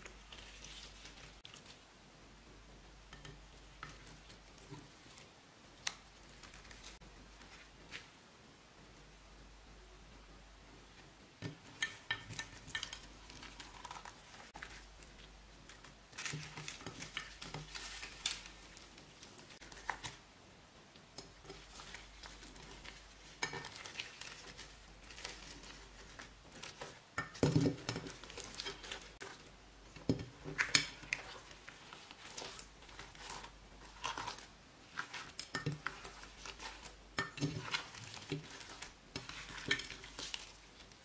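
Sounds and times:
slime squishing: 0:00.0 - 0:01.9, 0:11.6 - 0:20.2, 0:21.2 - 0:41.0.

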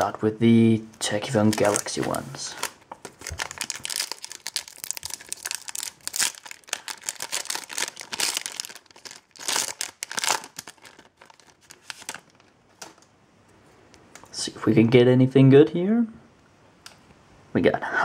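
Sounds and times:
foil pack tearing and crinkling: 0:01.4 - 0:12.5.

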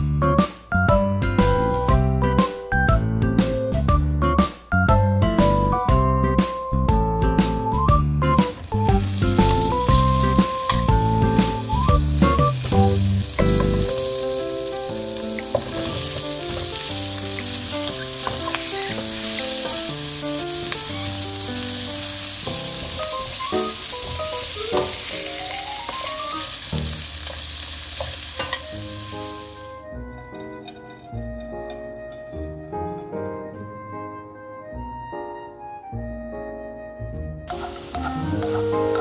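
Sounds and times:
vegetables sizzling in a pan: 0:08.4 - 0:29.7, 0:37.5 - 0:39.0
utensils knocking against a pan: 0:15.4 - 0:20.0, 0:27.2 - 0:28.7.

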